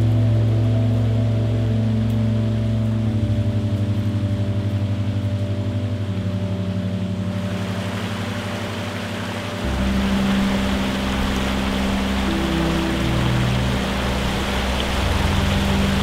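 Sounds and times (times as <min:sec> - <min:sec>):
ambient music with low chords: 0:00.0 - 0:16.0
shallow stream rushing: 0:06.0 - 0:16.0.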